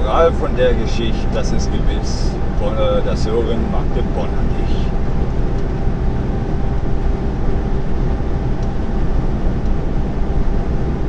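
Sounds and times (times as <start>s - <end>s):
lorry engine drone: 0.0s - 11.0s.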